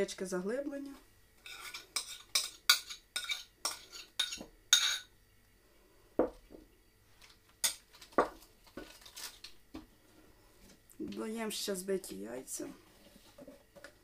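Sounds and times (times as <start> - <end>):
metal spoon clinking on bowl: 1.5 - 5.1.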